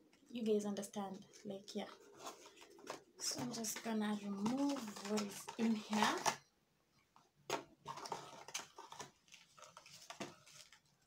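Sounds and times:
packaging rustling and clicking: 1.9 - 6.4, 7.5 - 11.0.

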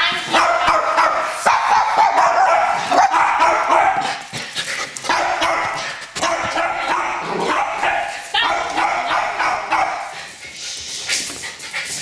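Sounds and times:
dogs barking: 0.2 - 4.3, 5.0 - 10.2.

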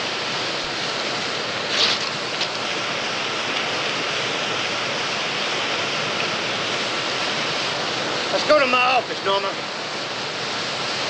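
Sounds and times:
sharp rustle: 1.7 - 2.6.

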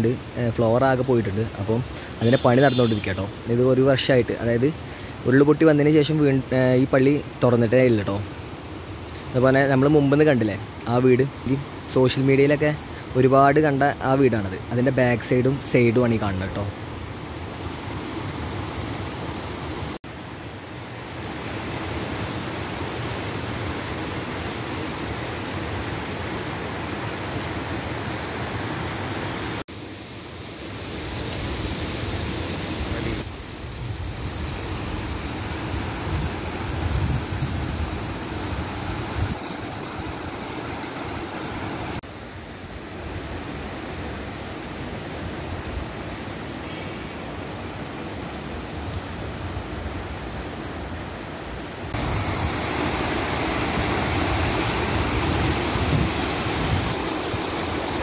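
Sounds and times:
stream rushing over boulders: 0.0 - 58.0.

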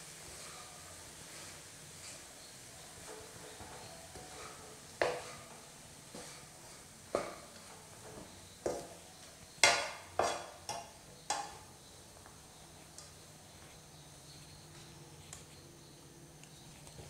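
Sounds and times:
spatula stirring rice in a pan: 0.0 - 11.7
spatula knocking against pan: 5.0 - 5.4, 9.6 - 11.6.

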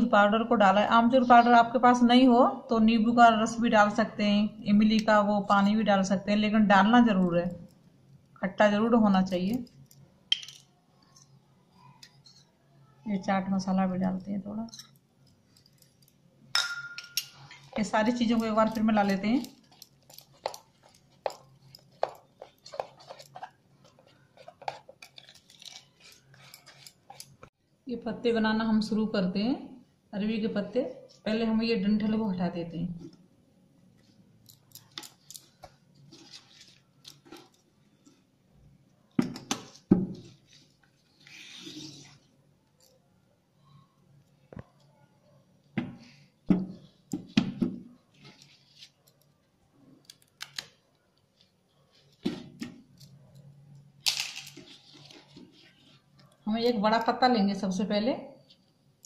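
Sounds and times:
batter stirred in metal bowl: 13.6 - 27.6.

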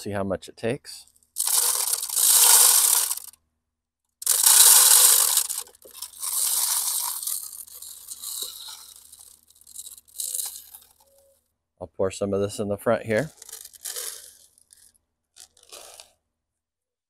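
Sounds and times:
bird seed pouring: 1.4 - 3.3, 4.2 - 11.1, 13.2 - 16.1.

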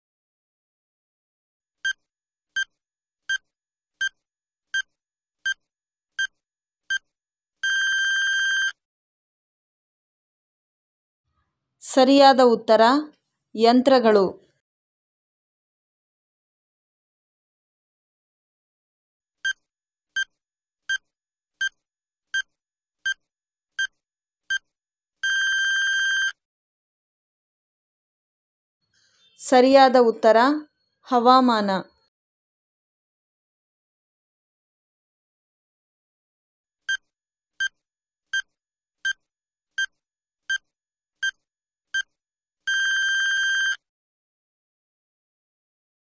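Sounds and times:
long electronic beep: 42.7 - 43.8.

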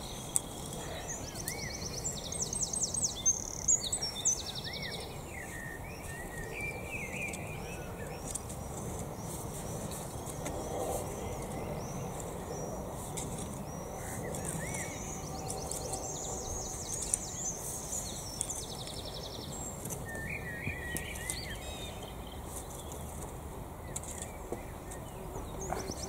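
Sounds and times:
songbirds singing: 0.0 - 26.0
rake scraping through soil: 5.2 - 26.0.

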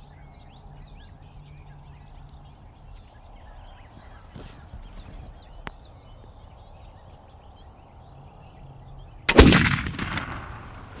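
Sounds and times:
faint birdsong: 0.0 - 11.0
musket shot: 9.3 - 11.0.

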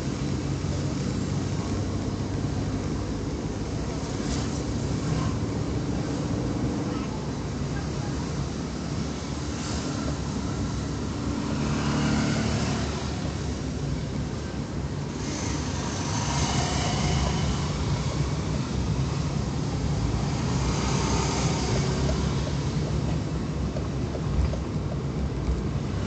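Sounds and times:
engine and road rumble: 0.0 - 26.0
hiss: 15.1 - 18.1.

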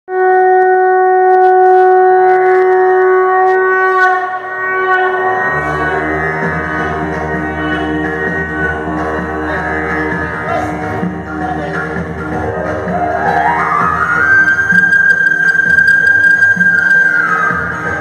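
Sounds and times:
long wind instrument note: 0.1 - 11.6
music with low drone: 0.1 - 18.0.

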